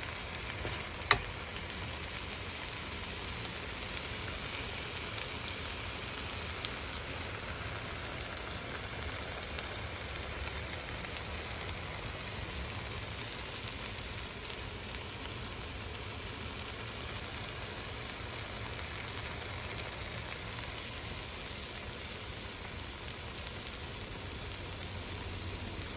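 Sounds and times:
food sizzling in a wok: 0.0 - 25.9
small pops: 0.4 - 1.9.

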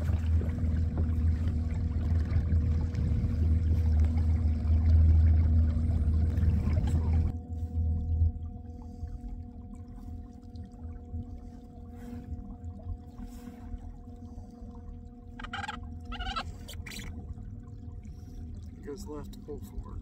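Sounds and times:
water and rumble noise: 0.0 - 20.0
short pitch-bending calls: 15.4 - 17.1.

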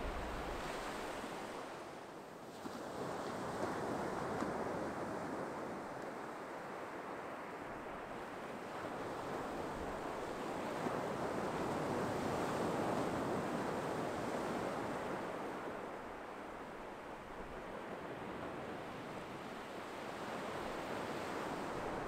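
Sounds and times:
waves breaking on beach: 0.0 - 4.9, 6.3 - 22.0.

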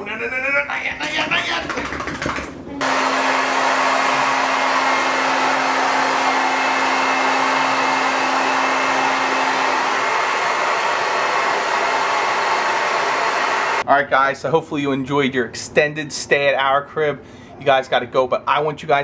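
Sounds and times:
hair dryer blowing: 2.8 - 13.8.

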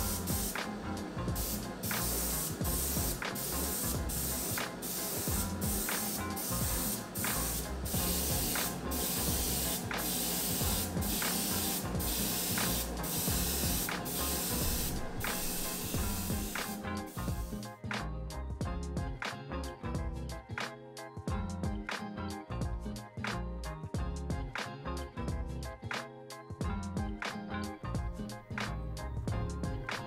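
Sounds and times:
airbrush spraying hiss: 0.0 - 17.7.

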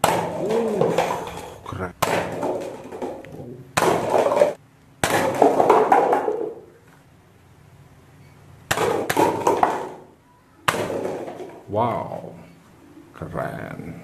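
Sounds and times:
paper cups clattering down: 0.0 - 3.2, 3.8 - 6.7, 8.7 - 11.7.

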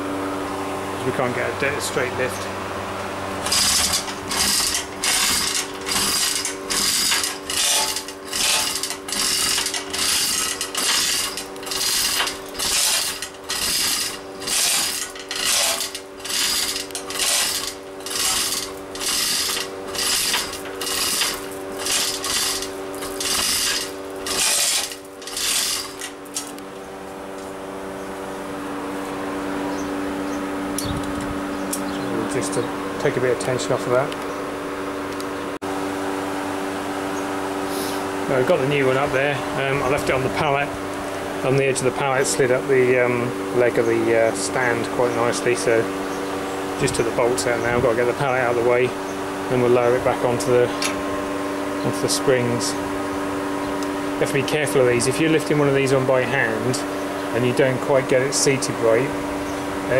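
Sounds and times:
steady machine hum: 0.0 - 59.9
chain hoist rattling: 3.4 - 26.6.

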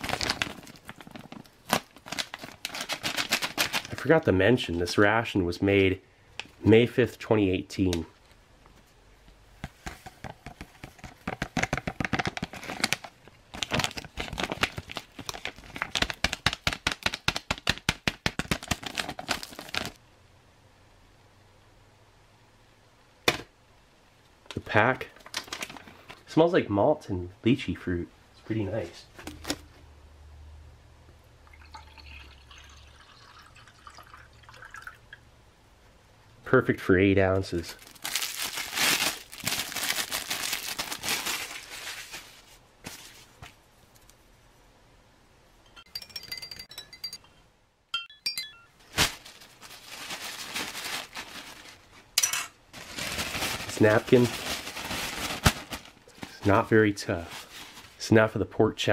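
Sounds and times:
foil pouch crinkling: 0.0 - 4.2, 11.3 - 20.0, 37.7 - 43.1, 48.8 - 52.1, 52.7 - 58.0
water pouring into a glass: 31.4 - 35.2.

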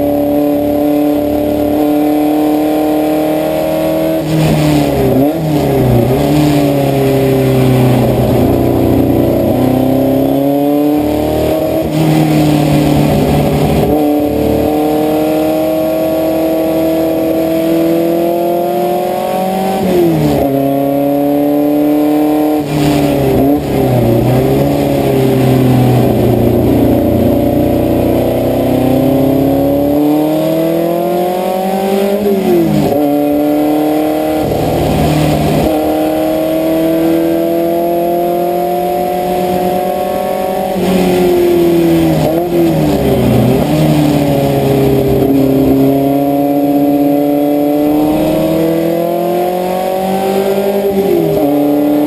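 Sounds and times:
race car engine at full throttle: 0.0 - 52.0.

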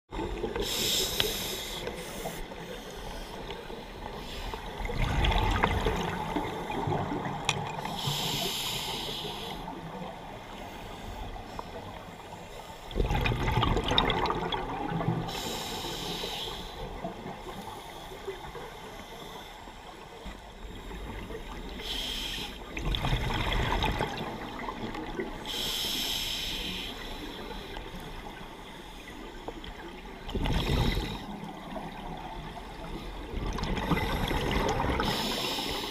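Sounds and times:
regulator hissing inhale: 0.6 - 4.8, 7.8 - 9.8, 15.3 - 19.8, 20.7 - 22.7, 25.5 - 28.0, 30.6 - 31.5, 33.9 - 35.9
exhaled bubbles bubbling: 4.6 - 7.9, 12.9 - 15.4, 22.7 - 25.4, 33.2 - 35.2.

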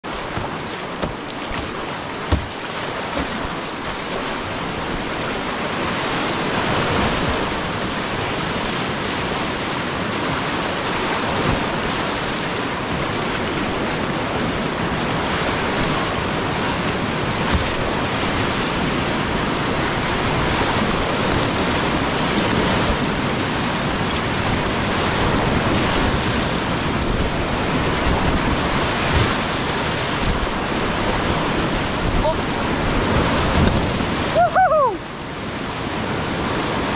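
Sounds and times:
rapids rushing water: 0.0 - 36.9
brief knocks: 2.3 - 2.6.

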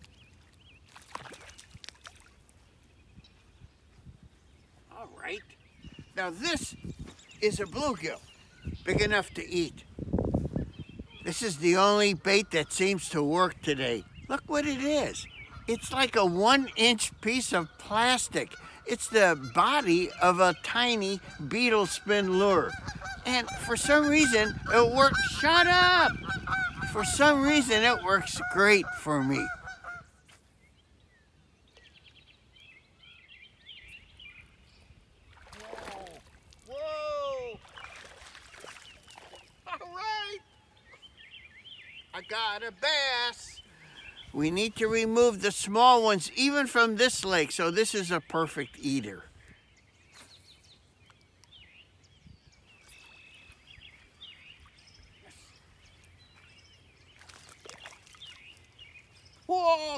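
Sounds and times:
faint songbird chirps: 0.0 - 25.2, 28.4 - 46.4, 47.1 - 59.9.

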